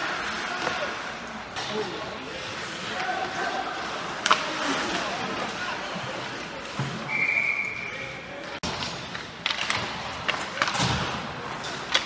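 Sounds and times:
hockey sticks and puck clacking: 0.0s - 7.1s, 8.4s - 12.0s
high whistle blast: 7.1s - 8.0s.

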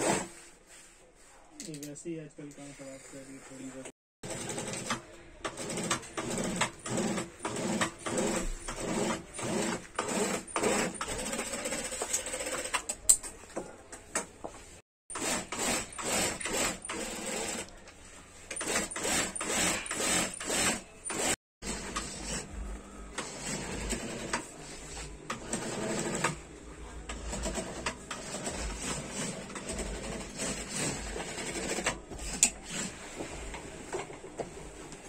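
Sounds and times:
industrial sewing machine stitching: 4.2s - 12.9s, 15.1s - 17.7s, 18.5s - 22.5s, 23.2s - 26.5s, 27.1s - 32.9s.

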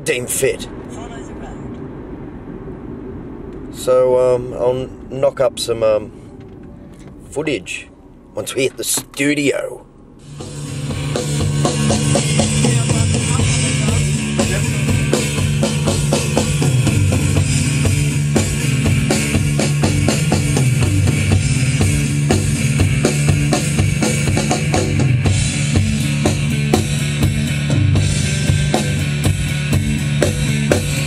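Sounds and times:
bass line: 10.1s - 31.0s
band music: 10.2s - 31.0s
drum kit hits: 10.3s - 31.0s.

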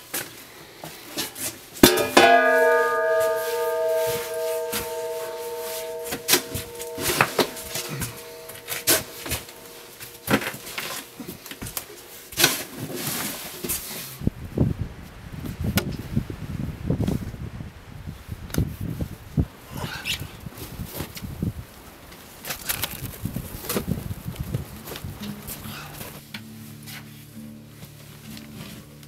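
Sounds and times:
plucked ukulele tune: 1.8s - 9.8s.

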